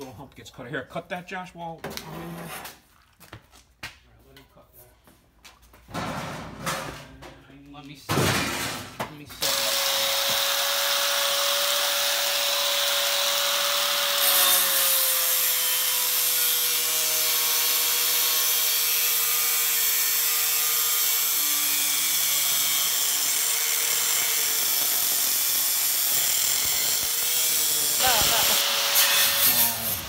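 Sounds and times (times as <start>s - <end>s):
angle grinder cutting metal: 9.4s - 30.0s.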